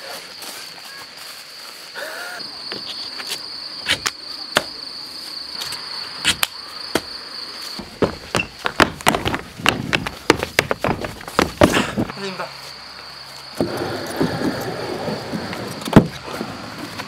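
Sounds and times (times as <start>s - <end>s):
insects chirring in grass: 0.0s - 17.0s
footsteps and feet landing: 5.6s - 12.2s
footsteps on concrete ramp: 7.0s - 12.2s.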